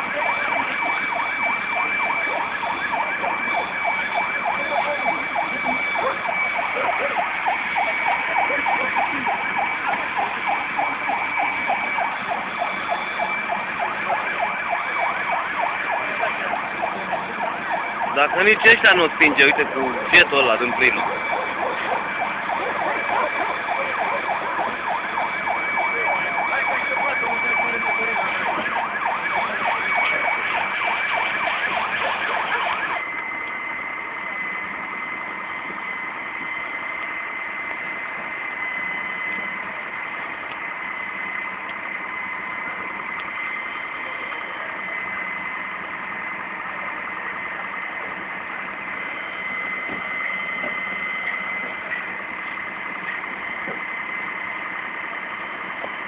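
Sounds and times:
fire crackling: 0.0 - 56.0
fire engine running: 0.0 - 56.0.

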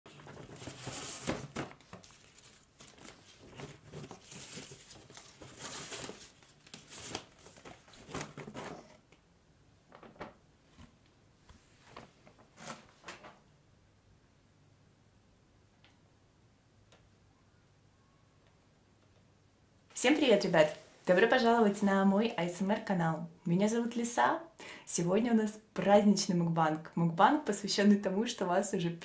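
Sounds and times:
cardboard scrapes and crinkles: 0.1 - 9.0.

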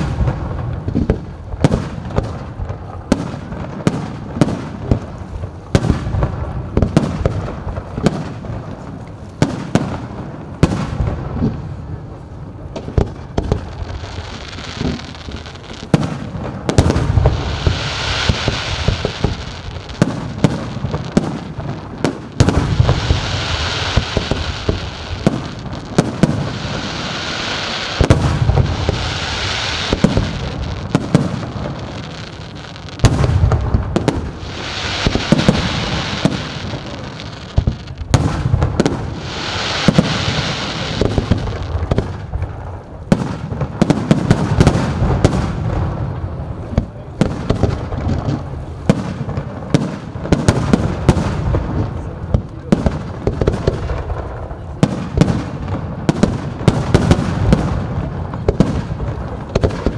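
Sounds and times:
fireworks booming: 0.0 - 59.9
fireworks hissing crackle: 0.0 - 59.9.

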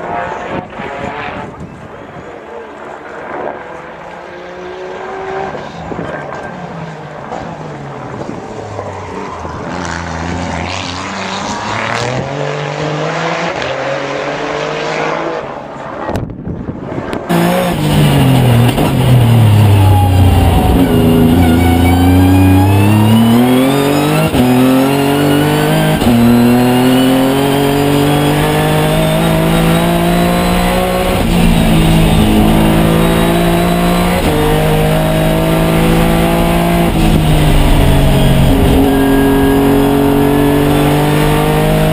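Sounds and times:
race car engine revving: 17.3 - 41.9.

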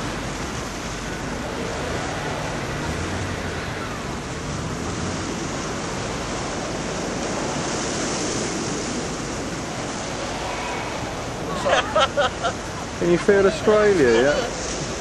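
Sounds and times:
sea surf: 0.0 - 15.0
wind buffeting microphone: 0.0 - 15.0
wind rushing: 1.2 - 13.0.

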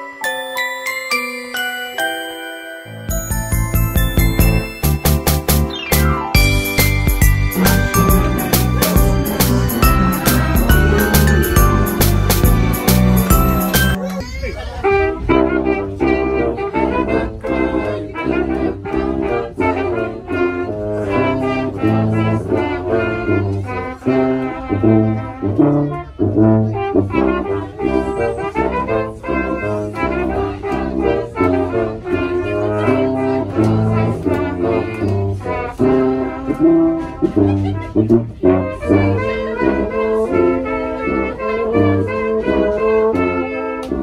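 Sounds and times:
brass band playing: 0.0 - 14.0, 14.8 - 44.0
tuba low bass notes: 3.1 - 14.0, 14.9 - 44.0.

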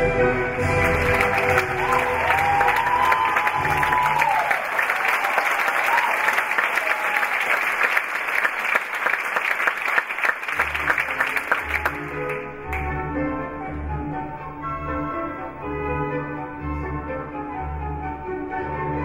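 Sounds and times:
orchestral ballet music: 0.0 - 5.0, 10.4 - 19.0
audience applauding: 0.6 - 12.9.

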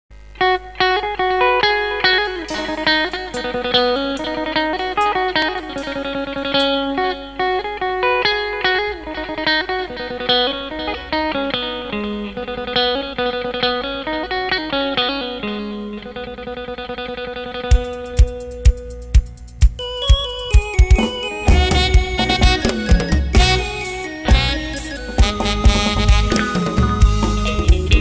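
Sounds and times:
bass guitar: 0.1 - 28.0
electric guitar melody: 0.2 - 28.0
drums: 2.1 - 7.1, 17.7 - 28.0.

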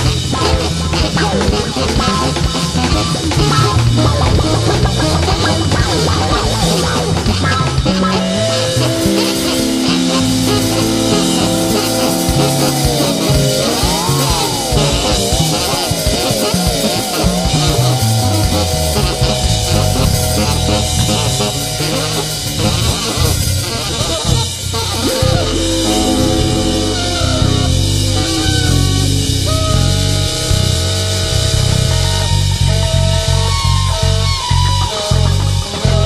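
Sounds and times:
bass line: 0.0 - 36.0
drums: 0.0 - 36.0
live band playing: 0.0 - 36.0
sliding lead note: 3.6 - 33.0.

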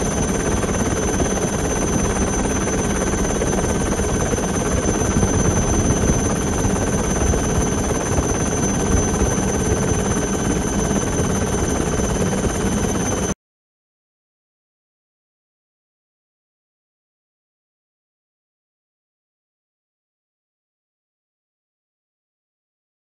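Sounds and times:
helicopter engine and rotors: 0.0 - 13.4.

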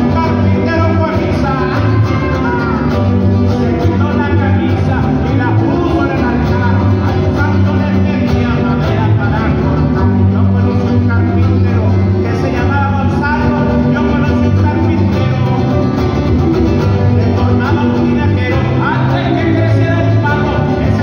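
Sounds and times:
electric bass line: 0.0 - 21.0
small guitar strummed: 0.0 - 21.0.

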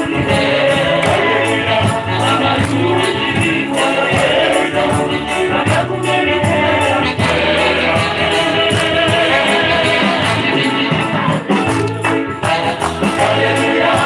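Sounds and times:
church choir singing: 0.0 - 14.0
rhythmic hand percussion: 0.0 - 14.0.

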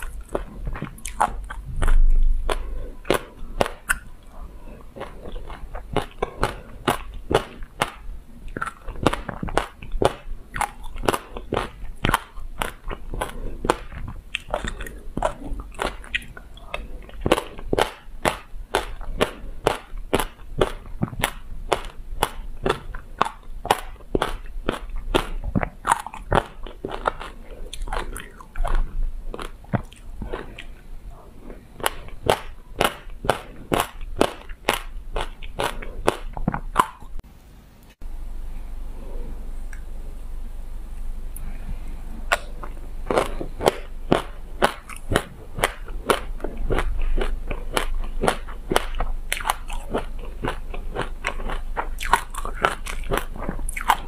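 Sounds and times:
chewing crunchy seeds: 0.0 - 37.2, 42.3 - 54.0.

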